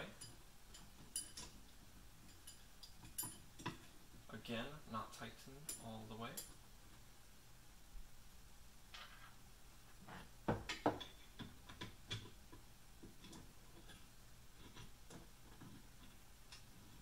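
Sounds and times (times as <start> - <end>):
metal parts clicking and knocking: 0.1 - 1.6.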